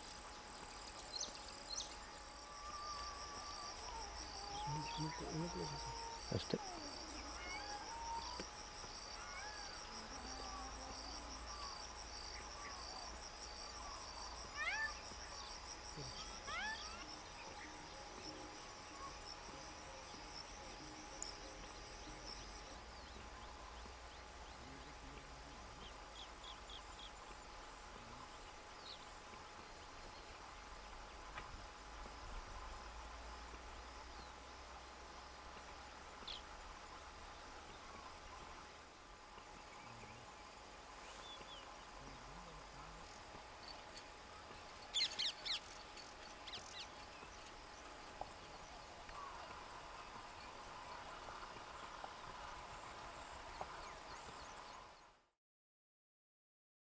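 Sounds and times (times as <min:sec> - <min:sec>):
insects trilling: 0:00.0 - 0:55.0
pulsing insect call: 0:00.0 - 0:55.1.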